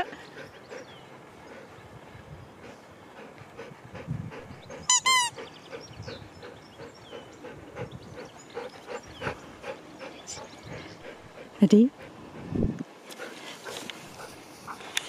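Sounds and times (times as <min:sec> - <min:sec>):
dog toy squeaking: 0:04.9 - 0:05.3.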